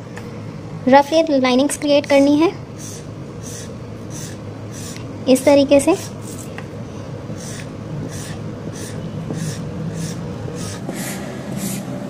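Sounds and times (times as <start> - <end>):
steady low hum: 0.0 - 12.0
marker pen scratching paper: 2.1 - 6.5, 7.3 - 11.8.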